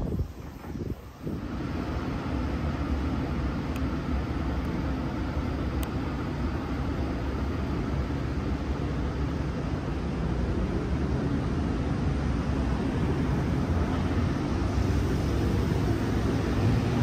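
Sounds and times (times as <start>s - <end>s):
electric train rumbling: 0.0s - 17.0s.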